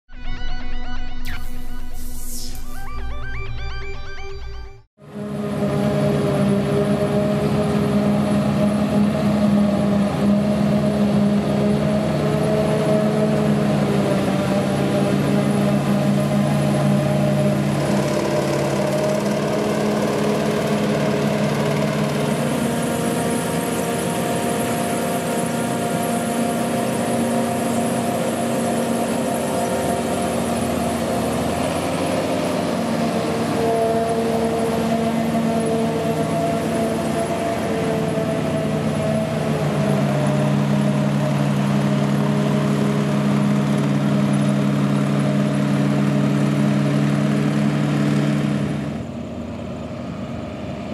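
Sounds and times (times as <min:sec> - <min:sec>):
high machine whine: 0:00.1 - 0:50.9
tractor engine: 0:05.0 - 0:50.9.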